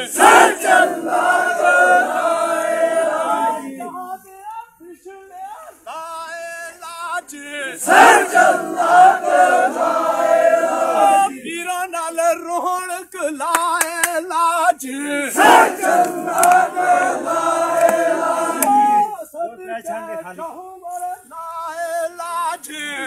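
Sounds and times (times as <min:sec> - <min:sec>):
group shouting and singing reply: 0:00.0 - 0:04.0, 0:07.7 - 0:11.4, 0:15.2 - 0:19.3.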